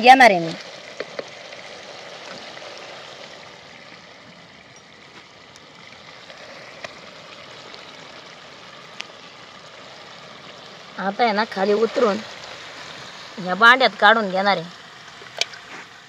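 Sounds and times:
pot simmering hiss: 0.0 - 16.0.

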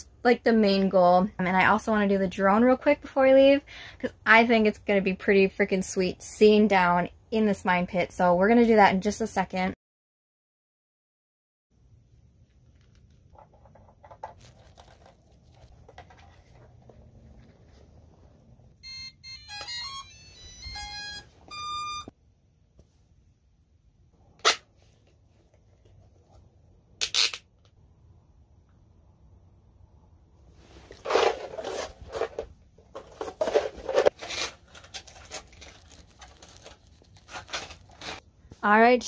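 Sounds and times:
handling rustle: 12.5 - 18.0, 30.6 - 38.2
electronic start-up beeps: 18.8 - 22.1.

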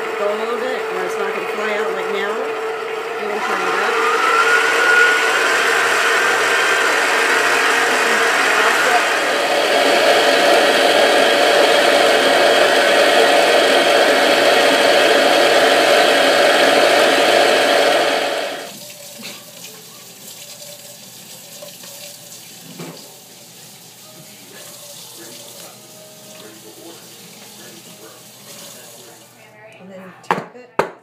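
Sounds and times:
electric mixer motor whine: 0.0 - 19.3, 24.1 - 29.3.

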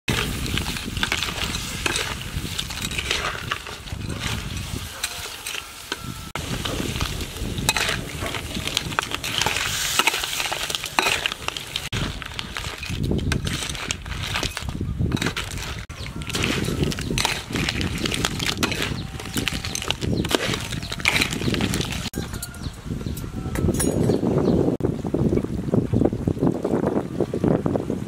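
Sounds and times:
steady sizzle: 0.1 - 13.9
metal spatula scraping wok: 0.1 - 22.2.

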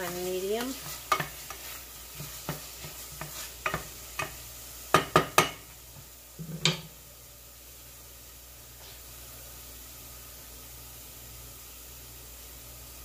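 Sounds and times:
onion and garlic sizzling in oil: 0.0 - 13.0
wooden spoon knocking against pan: 3.2 - 5.6, 6.5 - 6.9.

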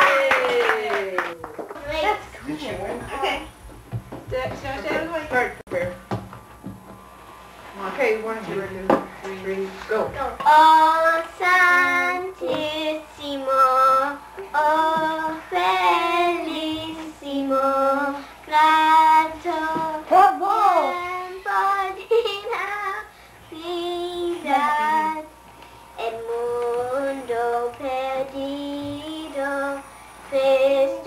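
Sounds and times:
girl singing: 10.2 - 25.4, 26.0 - 31.0.

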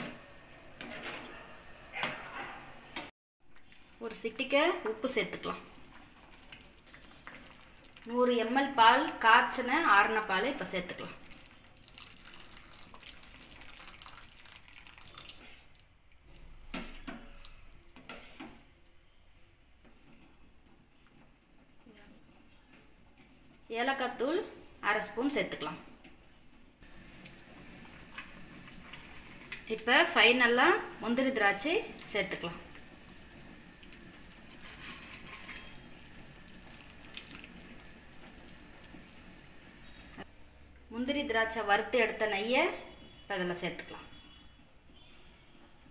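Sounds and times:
milk pouring into pot: 10.9 - 15.9, 31.3 - 40.2.

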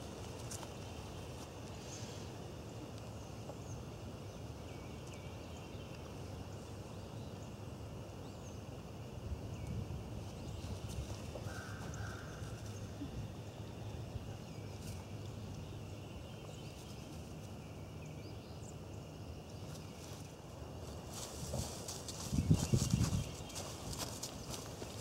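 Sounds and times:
footsteps on dry leaves: 19.7 - 25.0.

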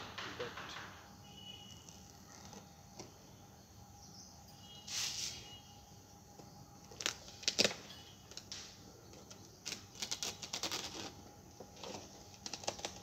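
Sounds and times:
knife slicing tape and cardboard: 8.4 - 11.2.

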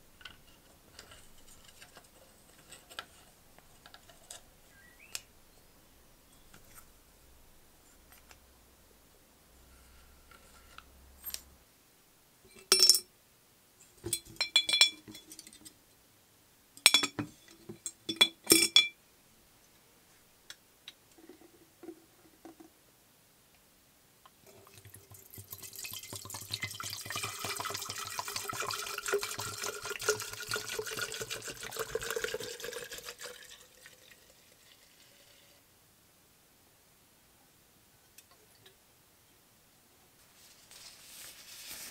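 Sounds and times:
liquid poured into glass jar: 24.4 - 35.5.

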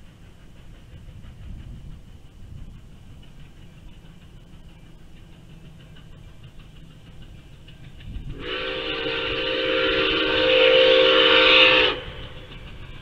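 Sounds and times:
steam locomotive whistle: 8.3 - 12.7.

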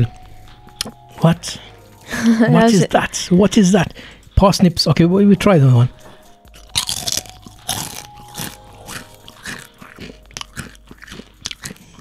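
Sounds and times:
people crunching crisps: 6.6 - 12.0.

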